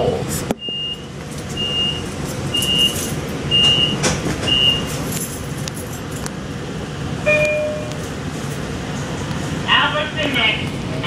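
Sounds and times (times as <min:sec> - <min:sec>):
low rumble of standing train: 0:00.0 - 0:11.0
short high warning beeps: 0:07.3 - 0:07.9.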